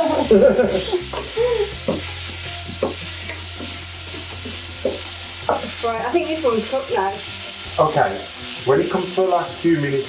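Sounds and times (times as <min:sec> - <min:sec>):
food sizzling in frying pans: 0:00.0 - 0:10.0.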